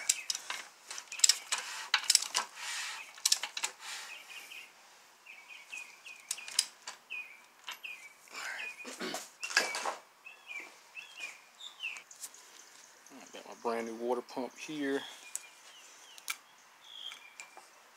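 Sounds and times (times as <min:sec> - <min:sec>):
small bird chirping: 0:00.0 - 0:01.8, 0:03.8 - 0:17.8
metal tools clinking: 0:00.0 - 0:03.8.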